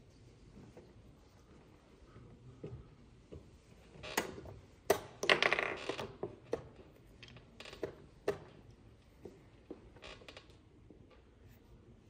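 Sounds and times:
wooden chess pieces knocking: 2.6s - 11.1s.

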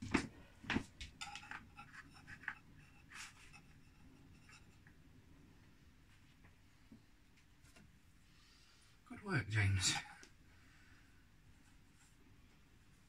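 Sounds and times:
small knife scraping dough: 1.2s - 4.9s.

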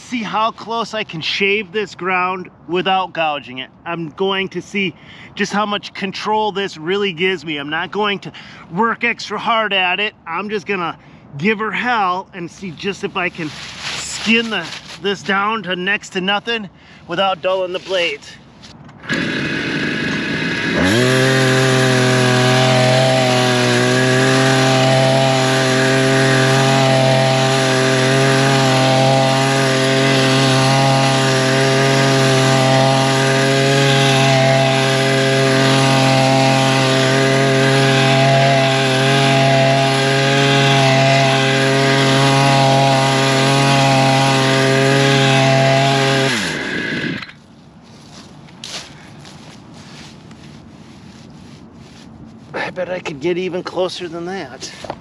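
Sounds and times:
brush cutter motor running: 19.0s - 48.3s.

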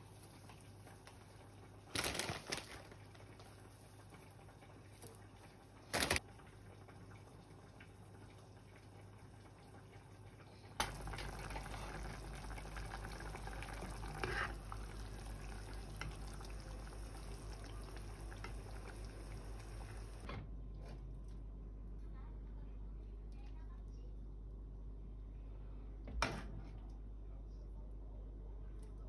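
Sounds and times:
saucepan simmering bubbling: 0.0s - 20.3s.

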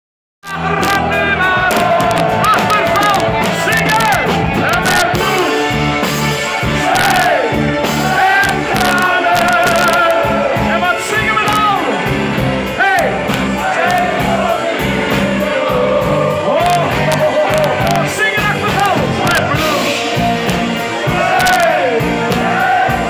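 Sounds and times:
live band playing loud music: 0.4s - 23.0s
crowd singing along: 0.6s - 23.0s
person singing: 8.4s - 12.0s, 12.8s - 20.3s.

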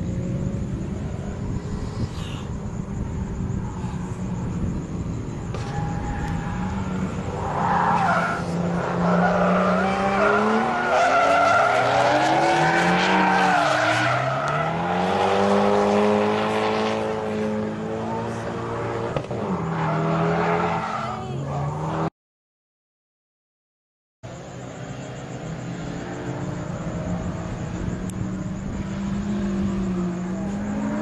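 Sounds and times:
car engine revving: 3.8s - 20.9s, 25.1s - 31.0s.

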